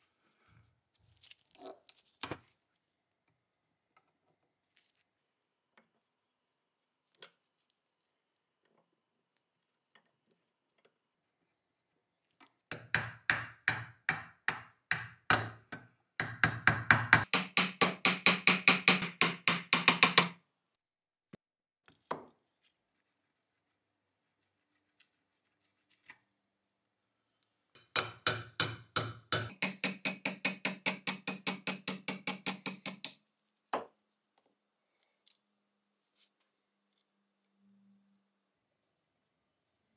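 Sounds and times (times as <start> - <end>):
hammer tapping on steel: 16.2 - 20.4, 27.8 - 33.2.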